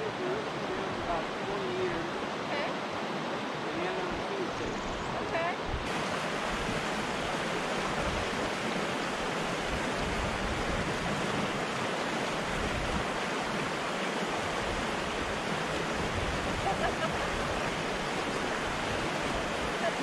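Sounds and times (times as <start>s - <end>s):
stream tumbling over rocks: 5.8s - 20.0s.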